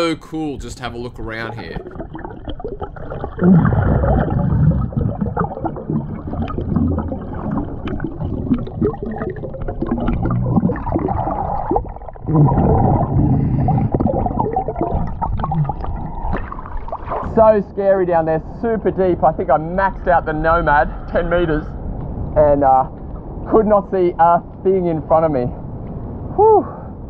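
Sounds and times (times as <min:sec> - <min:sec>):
gurgling exhaled bubbles: 0:01.3 - 0:17.5
diver breathing underwater: 0:12.5 - 0:14.6.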